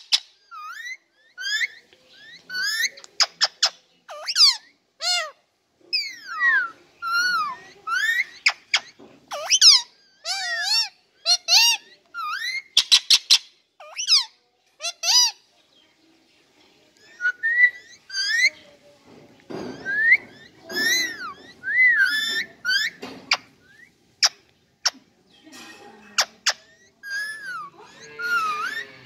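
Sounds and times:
parakeet whistling and chirping: 0:06.0 - 0:14.3, 0:17.0 - 0:18.6, 0:19.7 - 0:25.0, 0:26.2 - 0:29.0.

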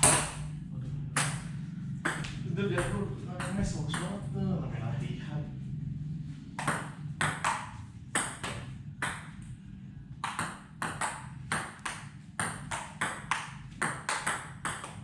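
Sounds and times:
ping-pong ball hits: 0:00.0 - 0:00.5, 0:01.1 - 0:04.3, 0:06.6 - 0:09.6, 0:10.2 - 0:15.0.

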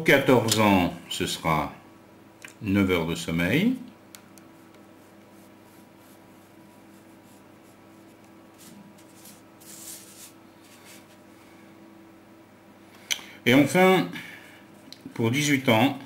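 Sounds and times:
faint steady hum: 0:00.0 - 0:16.0
pencil scratching on paper: 0:04.8 - 0:11.1
set square sliding over paper: 0:08.6 - 0:11.2.

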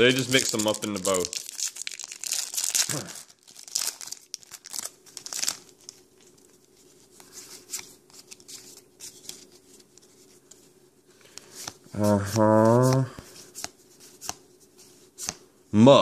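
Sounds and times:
foil wrapper crinkling: 0:00.0 - 0:06.8
cards rustling and clicking: 0:00.2 - 0:03.0, 0:03.6 - 0:15.4.

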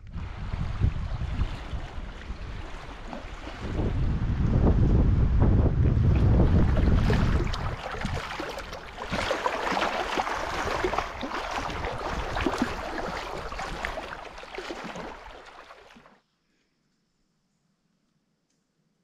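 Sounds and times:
lake water splashing: 0:00.0 - 0:04.5, 0:05.8 - 0:16.2
wind buffeting microphone: 0:00.0 - 0:15.4.

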